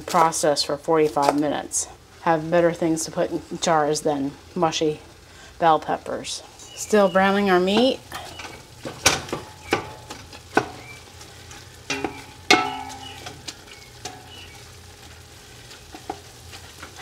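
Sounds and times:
meat sizzling in a pot: 0.0s - 17.0s
chopper knocking against metal pot: 11.9s - 13.4s.

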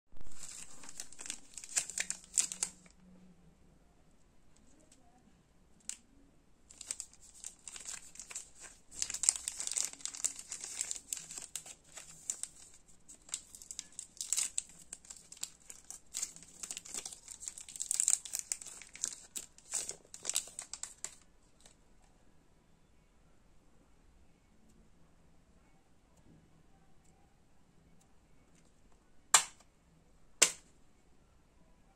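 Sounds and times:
plastic wrapper crinkling: 0.2s - 3.0s, 6.7s - 21.8s.

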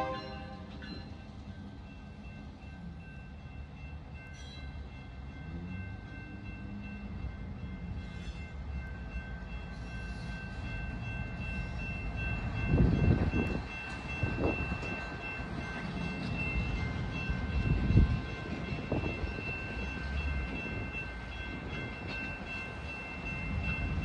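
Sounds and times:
crossing bells ringing: 0.0s - 24.0s
freight train rumble: 0.0s - 24.0s.

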